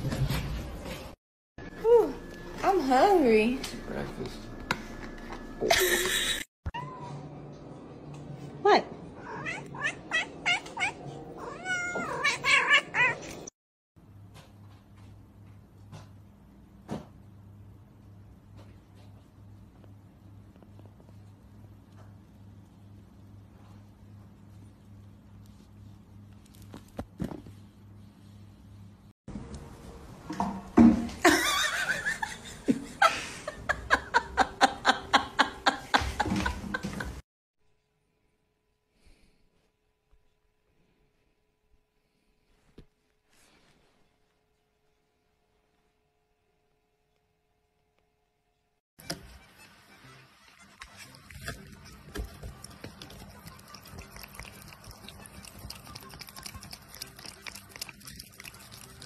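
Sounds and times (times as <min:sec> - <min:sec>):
person laughing: 0:05.6 - 0:06.4, 0:31.3 - 0:37.2
cat licking food: 0:51.2 - 0:59.0.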